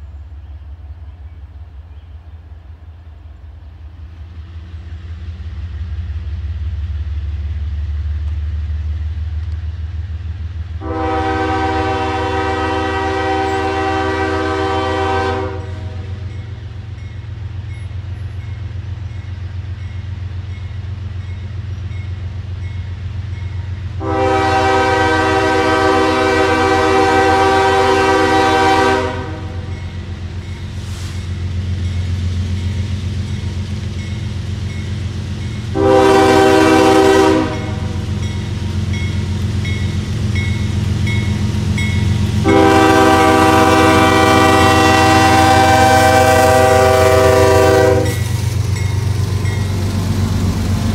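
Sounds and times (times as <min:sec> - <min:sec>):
locomotive air horn blasts: 0:10.8 - 0:16.3, 0:24.0 - 0:29.8, 0:35.7 - 0:38.1, 0:42.4 - 0:48.3.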